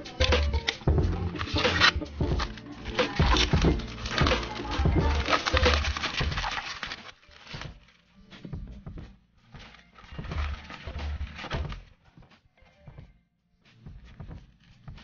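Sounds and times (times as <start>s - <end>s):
paper rustling: 0.2s - 8.2s, 9.5s - 12.0s
book tapping and thuds: 10.2s - 11.9s.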